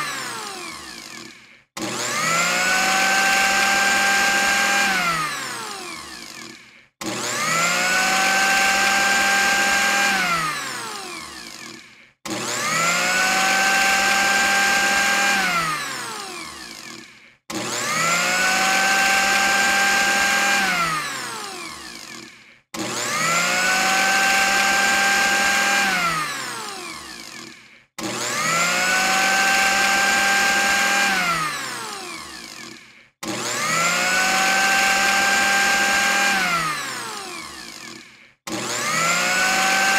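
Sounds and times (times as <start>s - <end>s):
blender motor whining: 0.0s - 39.9s.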